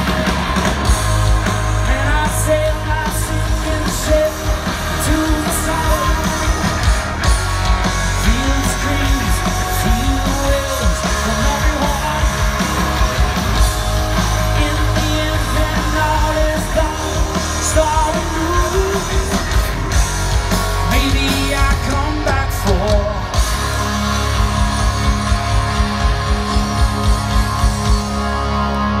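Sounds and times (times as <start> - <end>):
live rock band playing: 0.0 - 29.0
lead vocalist singing: 1.7 - 7.1, 8.0 - 20.0, 20.7 - 23.6.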